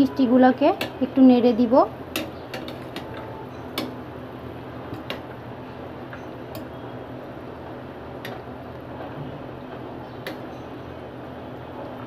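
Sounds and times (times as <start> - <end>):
syrup boiling with bubbling hiss: 3.7 - 12.0.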